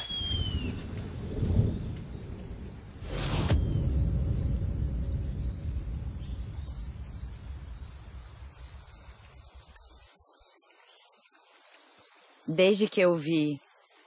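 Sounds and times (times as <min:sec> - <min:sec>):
insects trilling: 0:00.0 - 0:14.0
rolling thunder: 0:00.4 - 0:09.6.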